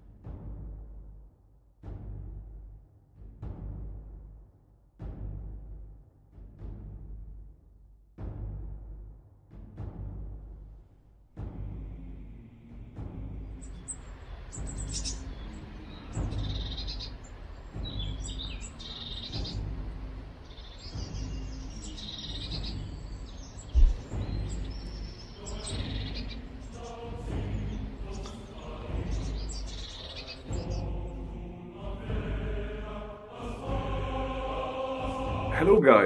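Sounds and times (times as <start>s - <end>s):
songbirds chirping: 10.5s - 36.0s
low rumble: 22.9s - 24.9s
loud thump: 23.8s - 24.1s.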